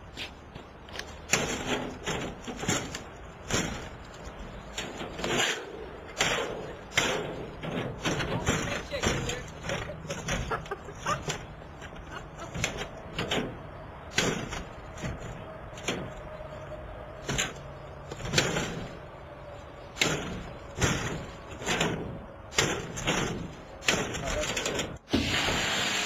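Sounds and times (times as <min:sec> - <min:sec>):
crowbar banging on metal mesh: 0:06.2 - 0:10.6, 0:12.5 - 0:16.1, 0:20.0 - 0:24.8.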